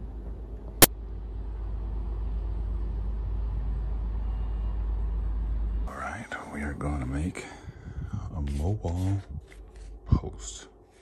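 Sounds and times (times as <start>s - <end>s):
low background rumble: 0.0s - 11.0s.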